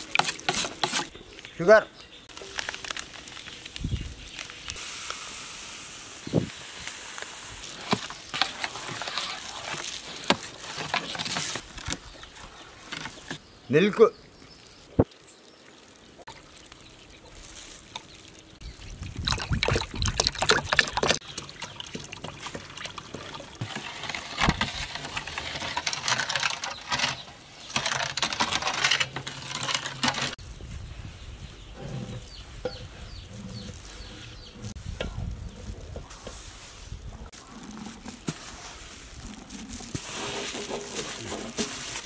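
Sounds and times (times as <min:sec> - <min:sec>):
ladle stirring batter in bowl: 0:19.3 - 0:30.4.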